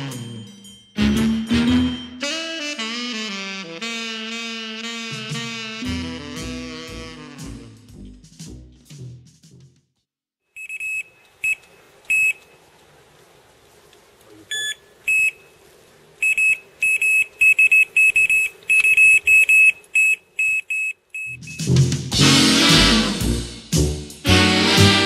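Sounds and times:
swing jazz music: 0.0 - 9.8, 21.4 - 25.0
bite alarm bleeping: 10.6 - 12.4, 14.5 - 15.4, 16.2 - 21.8.

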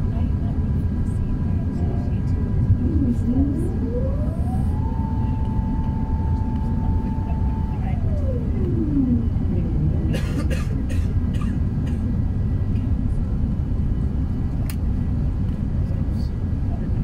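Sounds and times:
airplane cabin rumble: 0.0 - 17.0
falling whine: 2.6 - 10.2.

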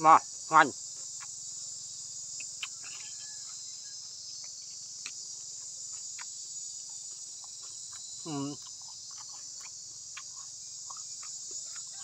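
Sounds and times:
insect chorus: 0.0 - 12.0
chewing mouth clicks: 2.4 - 3.2, 4.4 - 12.0.

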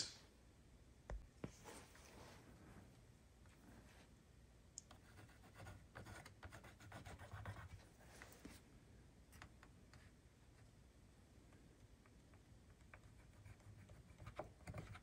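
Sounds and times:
pencil scratching on wood: 5.0 - 7.9, 12.9 - 15.0.

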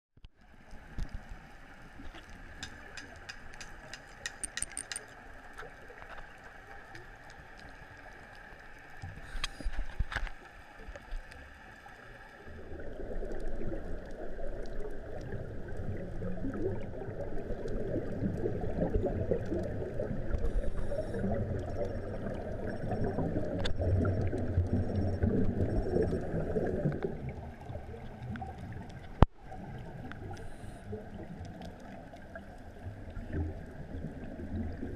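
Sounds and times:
underwater clicks: 2.0 - 7.8, 18.9 - 26.2
low underwater gurgling rumble: 5.2 - 34.9.

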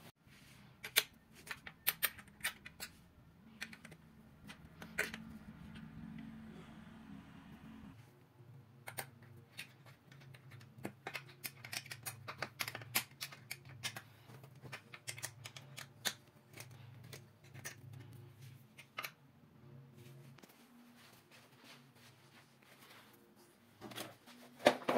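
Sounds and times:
steady low hum: 3.0 - 8.8
allen key clicking on screws: 8.9 - 14.0.

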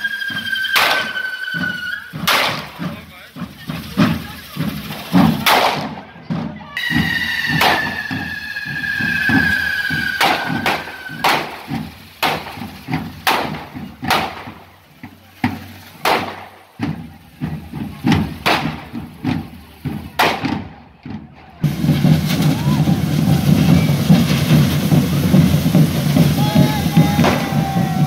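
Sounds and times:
falling whistling tone: 0.0 - 2.8, 6.8 - 11.8, 22.4 - 24.9
firework bangs: 0.4 - 6.1, 6.8 - 20.8, 21.6 - 28.0
background hiss: 6.8 - 20.1.

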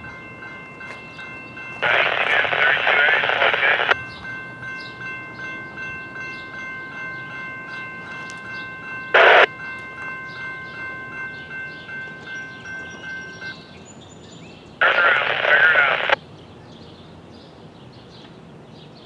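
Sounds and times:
railroad crossing bell ringing: 0.0 - 14.8.

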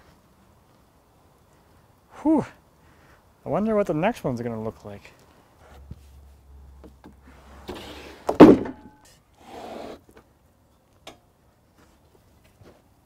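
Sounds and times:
wooden slab scraping: 7.6 - 8.8
loud wooden thud: 8.3 - 9.0.

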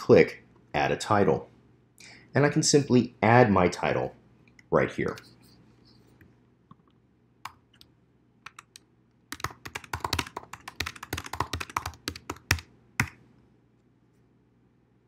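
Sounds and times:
computer keyboard typing: 8.5 - 13.2.

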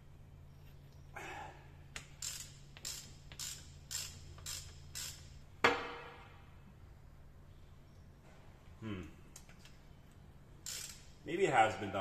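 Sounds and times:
ratchet wrench strokes: 1.9 - 5.4, 10.6 - 11.2.

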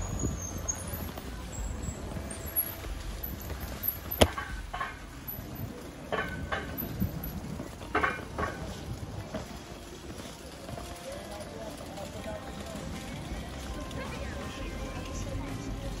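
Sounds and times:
wind on microphone: 0.0 - 2.5
bicycle tyres rumbling: 0.0 - 16.0
passers-by voices: 0.0 - 16.0.

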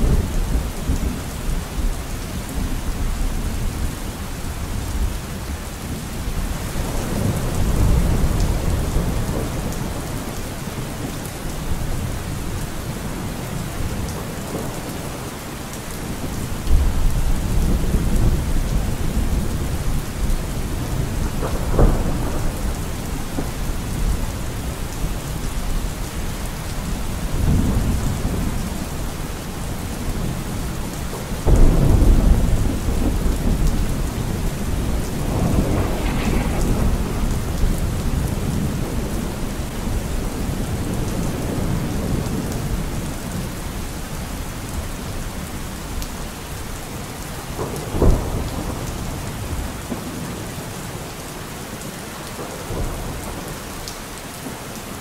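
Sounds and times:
steady rain: 0.0 - 55.0
thunder rumbling: 16.1 - 43.8.

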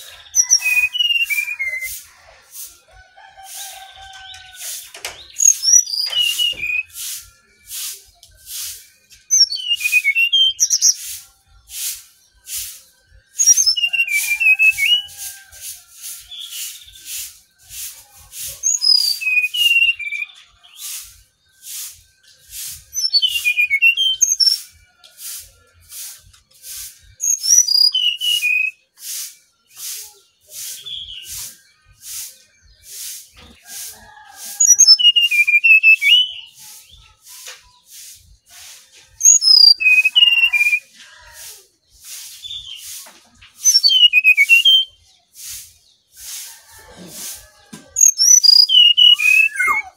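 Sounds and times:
bird singing whistled notes: 0.0 - 2.0, 5.2 - 15.2, 16.1 - 17.4, 18.6 - 24.9, 27.1 - 33.2, 34.6 - 38.1, 39.2 - 40.9, 43.6 - 45.1, 48.0 - 49.9.

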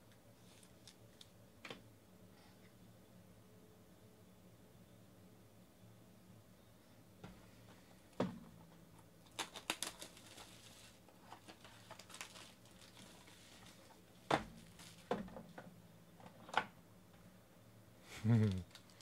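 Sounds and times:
wrapping crackling and tearing: 9.2 - 14.0, 14.6 - 15.1, 18.7 - 19.0.

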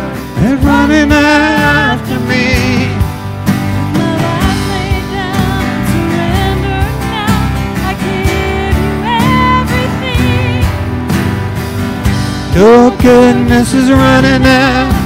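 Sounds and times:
electric guitar: 0.0 - 15.0
woman singing with vibrato: 3.8 - 10.8
drum beat: 7.4 - 15.0.

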